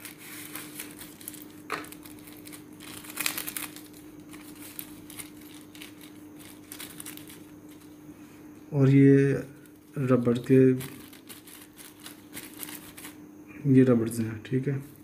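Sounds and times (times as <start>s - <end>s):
plastic bag crinkling: 0.0s - 8.0s, 9.6s - 13.2s.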